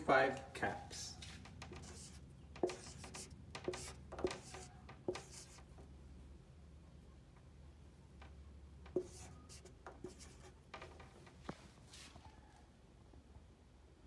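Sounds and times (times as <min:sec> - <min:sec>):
marker scratching on whiteboard: 0:00.8 - 0:06.3, 0:08.9 - 0:12.2
marker tip tapping board: 0:01.6 - 0:05.6, 0:08.9 - 0:10.9.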